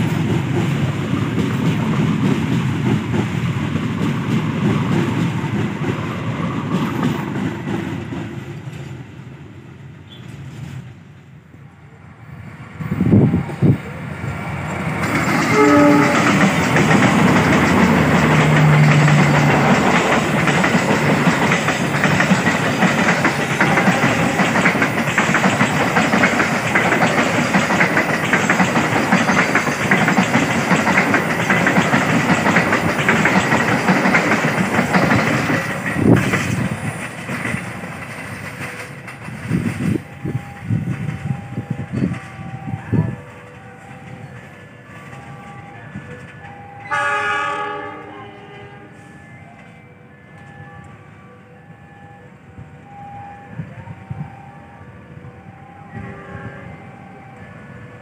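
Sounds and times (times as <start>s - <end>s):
train wheels rumbling on rails: 0.0s - 51.0s
train horn blast: 15.4s - 16.6s, 46.8s - 49.2s, 55.9s - 56.9s.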